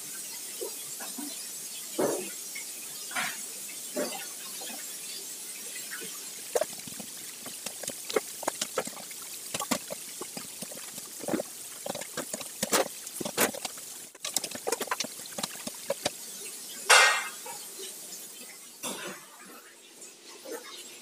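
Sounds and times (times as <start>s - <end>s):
liquid splashing and dripping: 5.8s - 17.4s.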